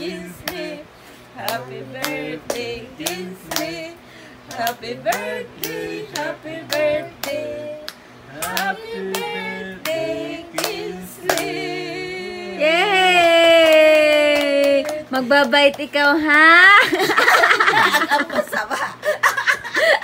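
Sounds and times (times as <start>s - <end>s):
hands clapping: 1.4s - 3.8s, 4.5s - 11.6s, 13.2s - 15.9s
person singing: 4.6s - 15.0s.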